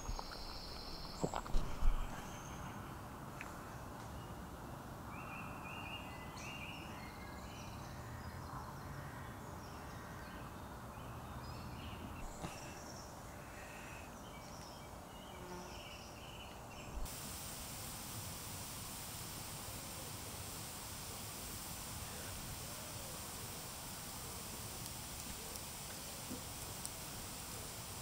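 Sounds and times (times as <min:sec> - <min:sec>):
small birds chirping: 0:00.0 - 0:03.0, 0:11.0 - 0:28.0
steady low hiss: 0:00.0 - 0:08.2, 0:10.6 - 0:28.0
faint clicks: 0:17.2 - 0:28.0.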